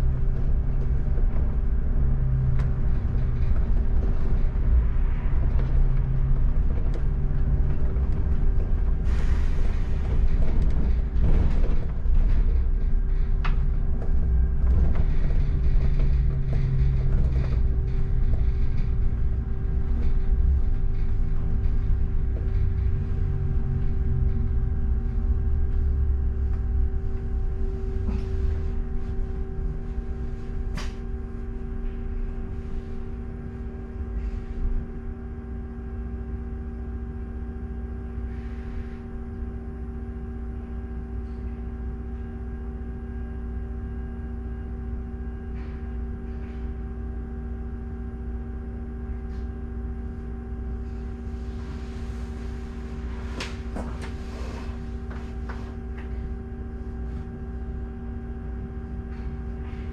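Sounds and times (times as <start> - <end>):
bus engine and road rumble: 0.0 - 59.9
steady hum of held tones: 0.0 - 59.9
faint clicks and knocks: 10.0 - 24.7.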